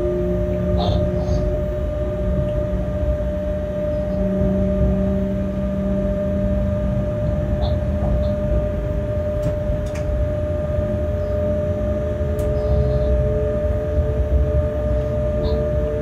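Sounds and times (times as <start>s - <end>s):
locomotive whine and rumble: 0.0s - 16.0s.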